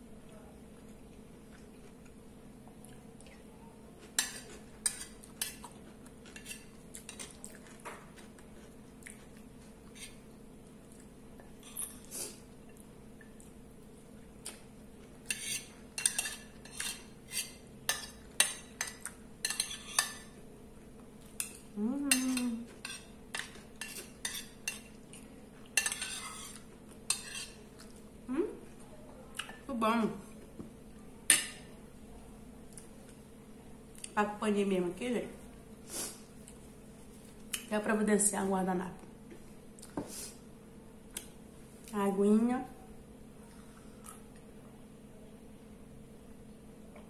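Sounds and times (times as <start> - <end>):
spoon scraping ceramic plate: 25.8 - 27.6.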